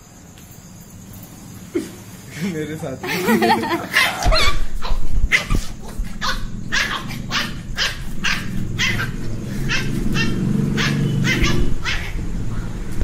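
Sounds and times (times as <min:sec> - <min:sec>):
puppy yapping: 0:03.9 - 0:12.2.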